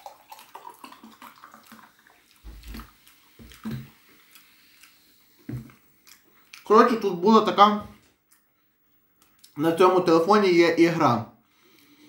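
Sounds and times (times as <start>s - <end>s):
soft drink pouring and fizzing: 0.0s - 5.8s.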